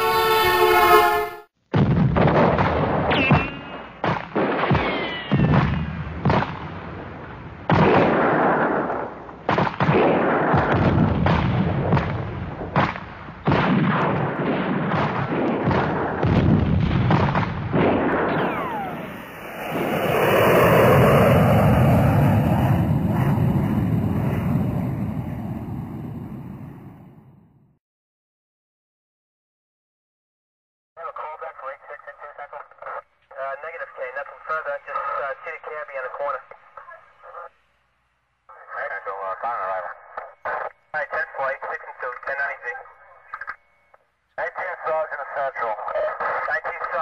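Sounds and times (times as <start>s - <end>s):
gunfire: 1.7s - 20.7s
explosions: 1.7s - 27.4s
falling whistling tones: 18.2s - 22.1s
long rumble: 18.4s - 27.4s.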